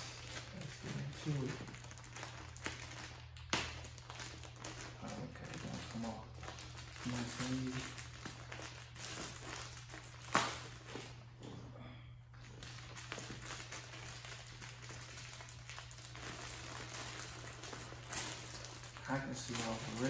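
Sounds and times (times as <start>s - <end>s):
plastic bag rustling and crinkling: 0.0s - 11.7s, 12.3s - 20.0s
plastic bag sharp snap: 10.2s - 10.6s.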